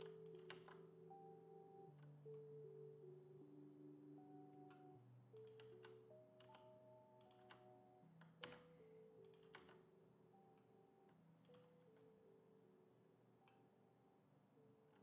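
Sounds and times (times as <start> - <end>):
computer clicks: 0.0 - 1.2, 4.5 - 9.9, 11.4 - 12.1
faint slow chord music: 0.0 - 15.0.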